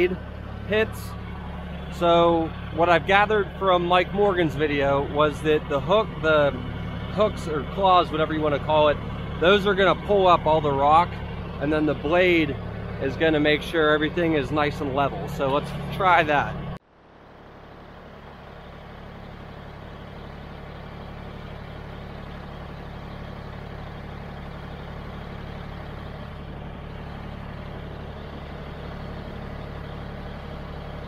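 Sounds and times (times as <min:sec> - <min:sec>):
tractor engine idling: 0:00.0 - 0:31.0.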